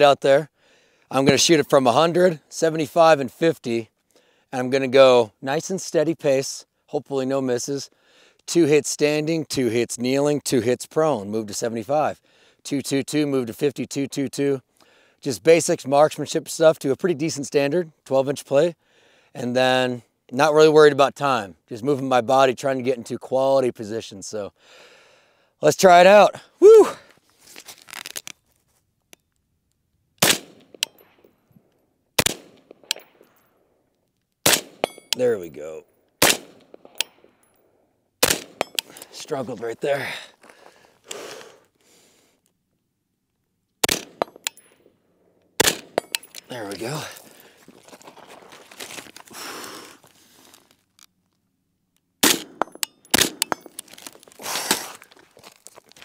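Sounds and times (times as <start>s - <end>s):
crunching on gravel: 27.3s - 28.8s, 38.3s - 41.8s, 45.6s - 51.0s, 52.3s - 56.0s
rifle shots echoing: 30.2s - 31.3s, 32.2s - 33.3s, 34.4s - 35.2s, 36.2s - 37.3s, 38.2s - 38.8s, 43.8s - 44.7s, 45.6s - 46.3s, 52.2s - 53.8s.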